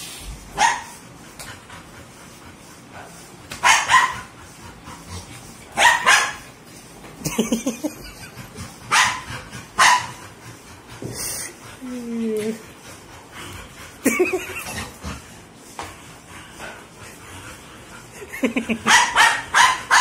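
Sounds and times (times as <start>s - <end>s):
dogs barking: 0.6s - 1.0s, 3.6s - 4.4s, 5.7s - 6.5s, 8.9s - 10.3s, 18.5s - 20.0s.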